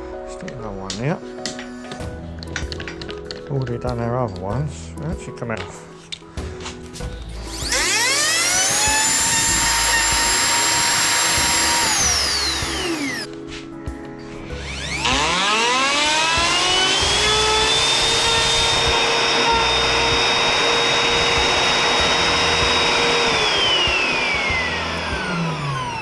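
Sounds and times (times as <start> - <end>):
plunge router motor whine: 7.4 - 13.3, 14.5 - 26.0.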